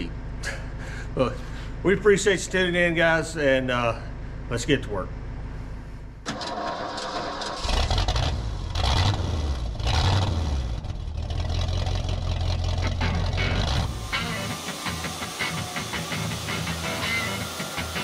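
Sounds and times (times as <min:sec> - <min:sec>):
truck engine starting and revving: 0:06.2 - 0:18.0.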